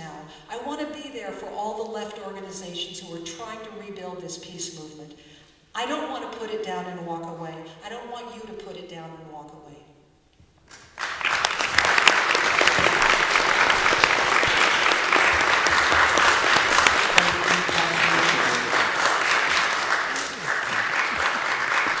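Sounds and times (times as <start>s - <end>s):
audience applauding: 10.7s - 22.0s.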